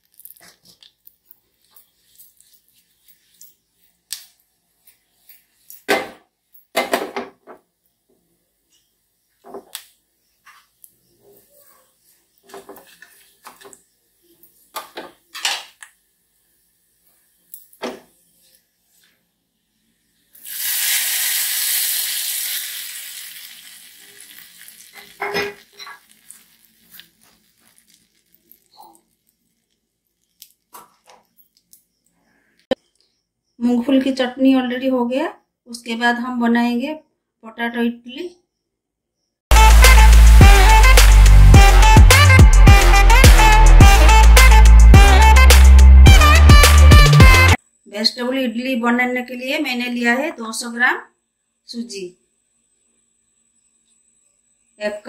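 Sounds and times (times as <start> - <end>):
hot oil sizzling: 20.3 - 30.7.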